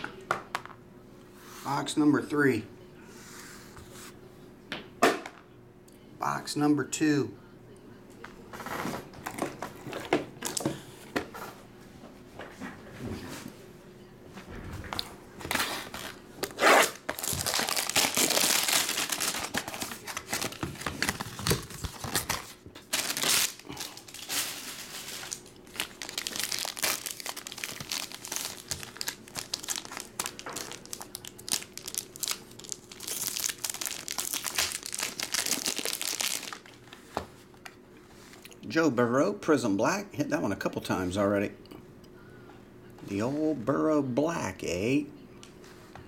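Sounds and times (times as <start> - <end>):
plastic wrap crinkling and tearing: 15.4 - 37.0.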